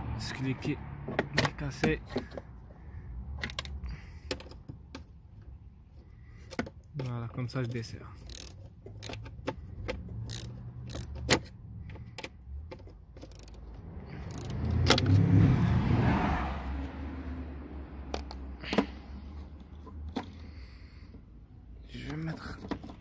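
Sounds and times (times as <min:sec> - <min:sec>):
ratchet wrench clicking: 0:08.2 - 0:11.5, 0:13.2 - 0:15.1.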